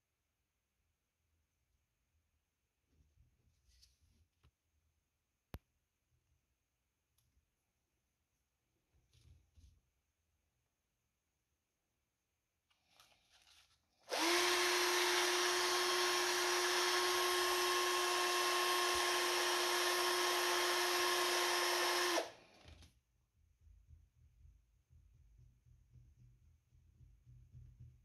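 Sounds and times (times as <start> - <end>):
power drill motor running: 14.1 - 22.7.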